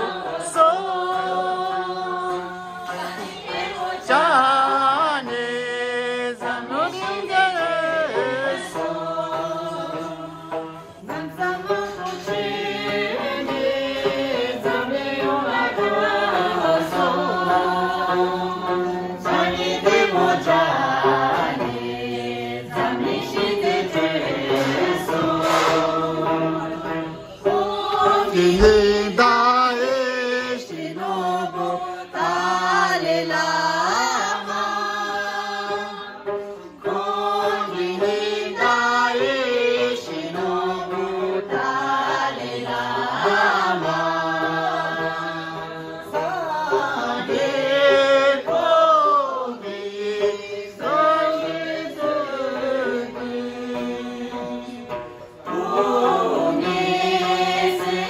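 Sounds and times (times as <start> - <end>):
group of voices chanting: 8.0 - 30.0.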